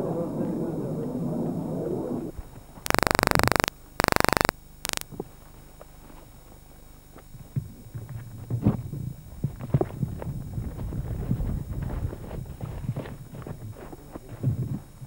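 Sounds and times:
brief electronic blip: 2.9 - 5.0
harsh electronic buzzing: 2.9 - 5.1.

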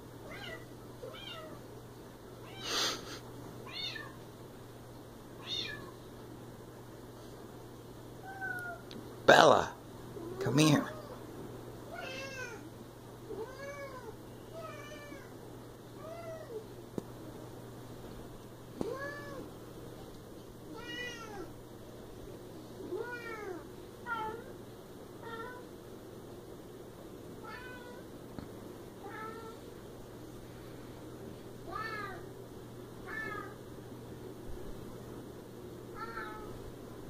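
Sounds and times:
cat meowing: 3.7 - 4.2, 5.4 - 6.0, 8.2 - 8.9, 11.9 - 12.6, 31.7 - 32.3, 33.0 - 33.6, 36.0 - 36.6.

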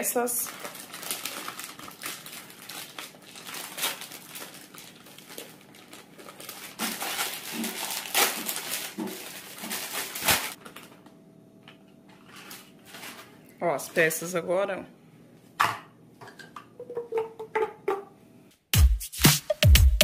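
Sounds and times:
packaging crinkling and rustling: 0.3 - 11.1, 12.1 - 13.5.

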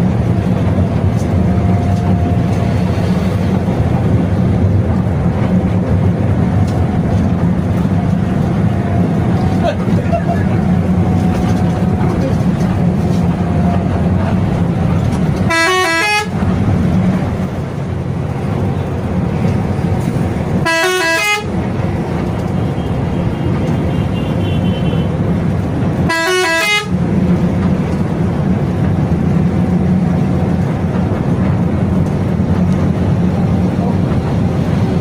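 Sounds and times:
bus engine and road noise: 0.0 - 35.0
bus musical horn: 15.4 - 16.4, 20.5 - 21.8, 22.5 - 25.3, 25.9 - 27.0.

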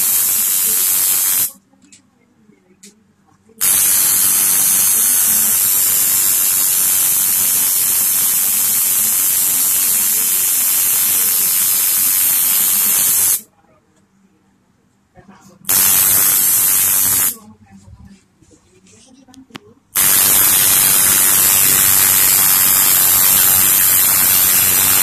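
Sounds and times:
loud static hiss: 0.0 - 1.6, 3.6 - 13.5, 15.7 - 17.4, 20.0 - 25.0.

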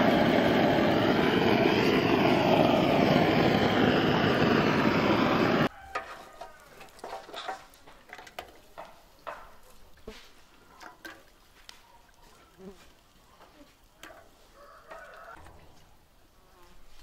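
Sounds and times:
blowtorch flame roaring: 0.0 - 5.7.

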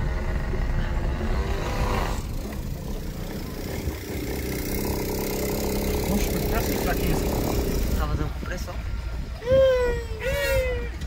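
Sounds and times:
two-stroke engine putter: 0.0 - 8.2
low vehicle rumble: 0.0 - 11.0.

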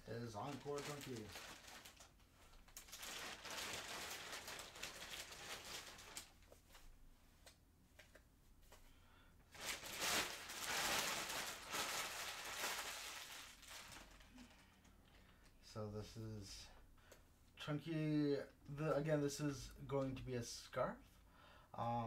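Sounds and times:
yarn rustling and crinkling: 0.1 - 7.0, 9.5 - 15.4.

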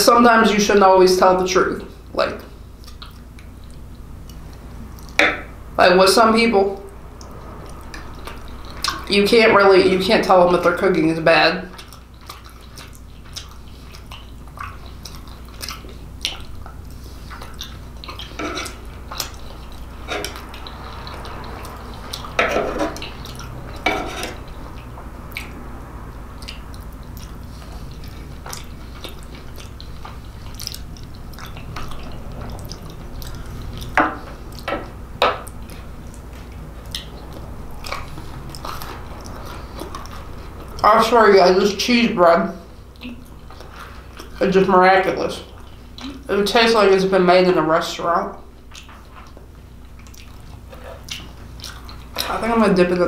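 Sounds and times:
low steady hum: 0.0 - 53.0
chewing and wet mouth sounds: 0.5 - 5.8, 6.6 - 53.0
knife and fork scraping plate: 18.2 - 18.8, 23.8 - 24.4.

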